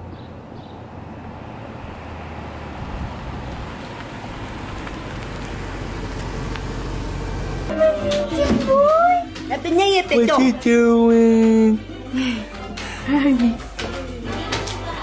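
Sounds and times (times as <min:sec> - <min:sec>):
car passing by: 0:00.6 - 0:06.1.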